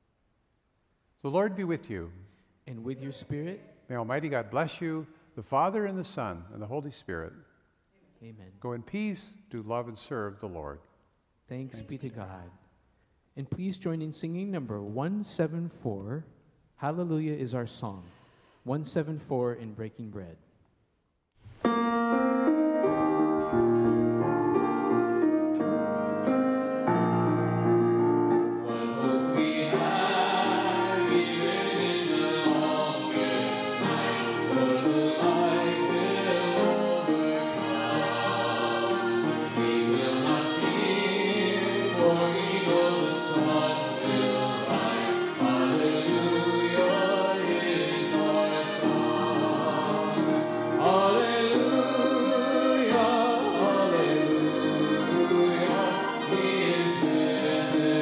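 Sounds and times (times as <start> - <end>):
keyboard chords: 21.6 - 58.0
violin: 22.9 - 58.0
voices singing: 28.5 - 58.0.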